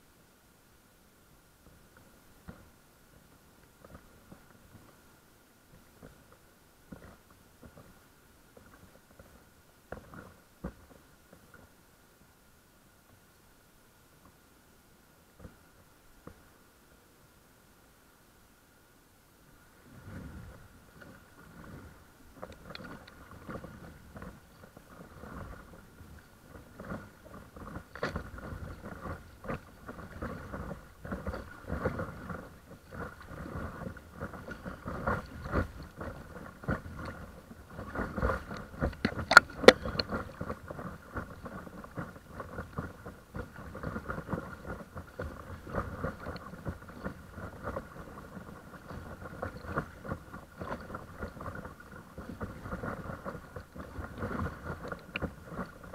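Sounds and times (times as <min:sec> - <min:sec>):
faint steady whine: 0:00.0 - 0:55.9
paddle strokes splashing water: 0:01.6 - 0:11.8, 0:19.6 - 0:55.9
water lapping against paddleboard: 0:01.6 - 0:11.8, 0:19.6 - 0:55.9.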